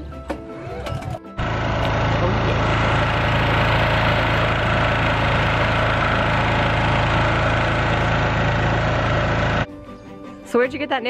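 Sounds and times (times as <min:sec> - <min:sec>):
generator and compressor running: 0:01.3 - 0:09.7.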